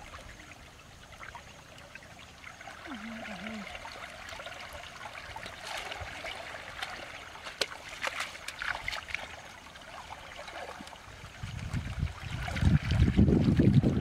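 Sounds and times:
water trickling: 0:00.0 - 0:14.0
hands splashing in water: 0:05.4 - 0:09.3
wind rumble on microphone: 0:11.1 - 0:14.0.

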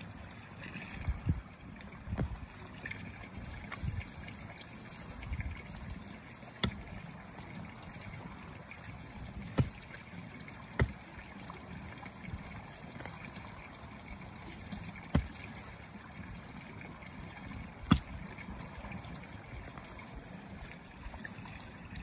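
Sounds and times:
hoe striking soil: 0:03.5 - 0:08.3, 0:08.9 - 0:11.1, 0:14.5 - 0:15.8, 0:17.8 - 0:18.2.

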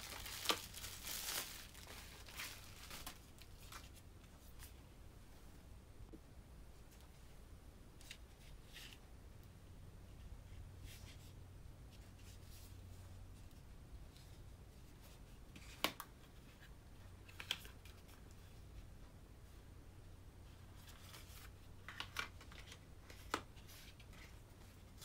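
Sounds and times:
rustling of card boxes: 0:00.0 - 0:04.8, 0:20.5 - 0:25.0.

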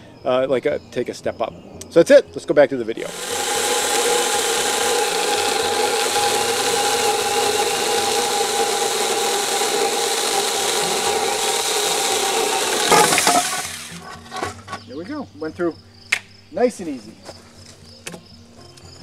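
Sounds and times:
electric chainsaw cutting wood: 0:03.0 - 0:14.0.

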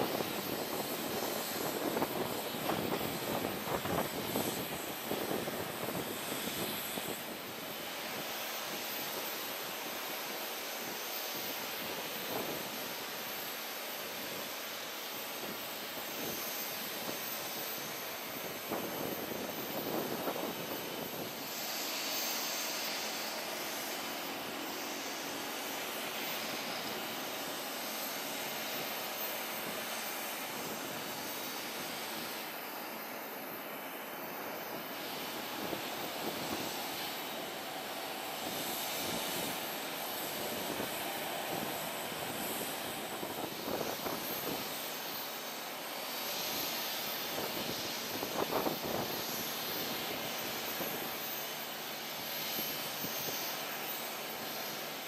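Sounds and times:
jet engines rushing: 0:00.0 - 0:55.0.

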